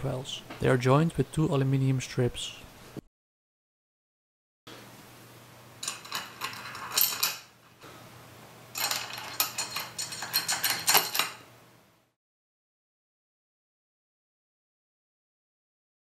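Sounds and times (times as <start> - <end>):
metal bolts clinking and scraping: 5.8 - 7.6, 8.7 - 11.5.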